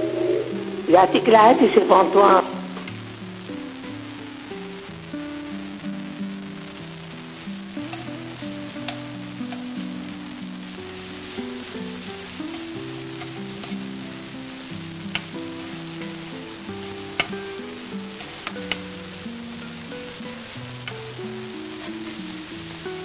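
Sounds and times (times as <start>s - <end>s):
eggplants sizzling in hot oil: 0.0s - 23.0s
soft background music: 0.0s - 23.0s
utensil clicking against pan: 8.8s - 9.7s, 18.3s - 18.9s.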